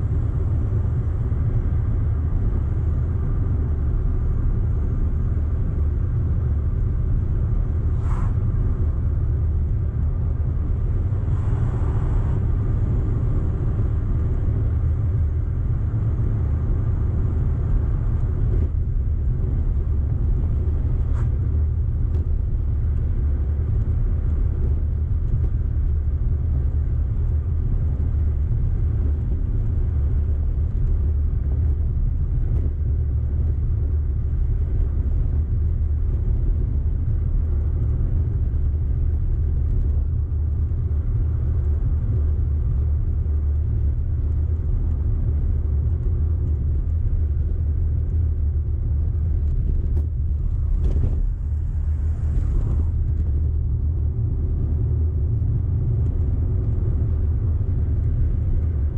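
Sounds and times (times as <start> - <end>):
car engine and road noise: 0.0 - 58.9
brief hiss: 8.0 - 8.4.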